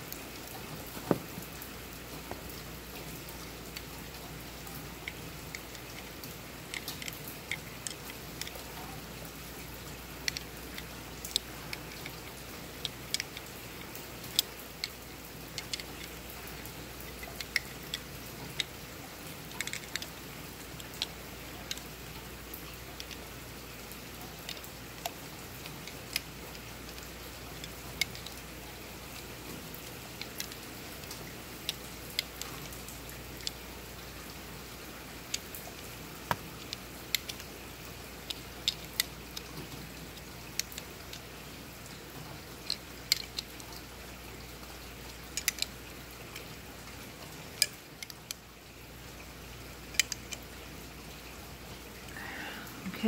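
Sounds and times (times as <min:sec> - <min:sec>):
metal part clicks and taps: 0:01.0 - 0:01.3.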